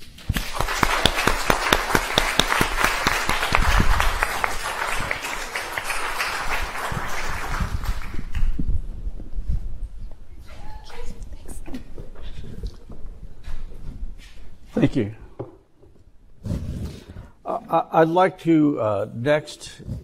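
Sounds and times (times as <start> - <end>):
audience applauding: 0.3 - 8.6.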